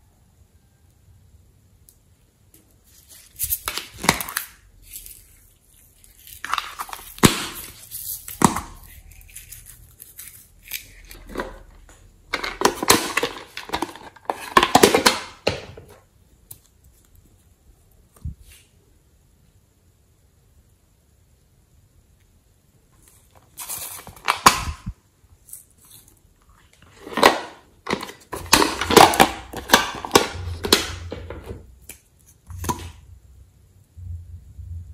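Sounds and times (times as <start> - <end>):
plastic packaging crinkling: 2.8 - 15.9, 23.0 - 32.9.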